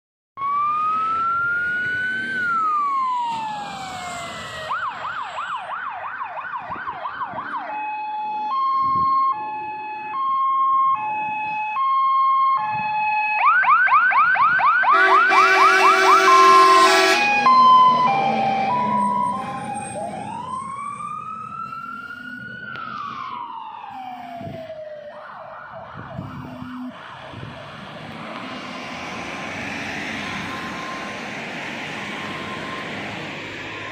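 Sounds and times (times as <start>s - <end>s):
fire engine siren wailing and yelping: 0.4s - 33.9s
air horns blasting: 14.9s - 19.2s, 26.2s - 27.0s.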